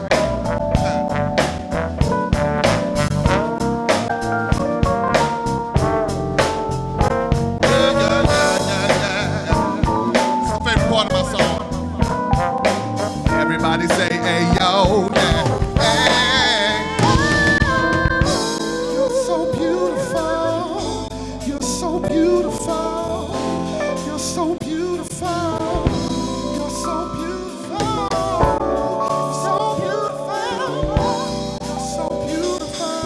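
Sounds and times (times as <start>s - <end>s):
man singing lead vocal: 0.0s - 1.2s, 7.6s - 12.4s, 13.2s - 33.0s
live band playing: 0.0s - 33.0s.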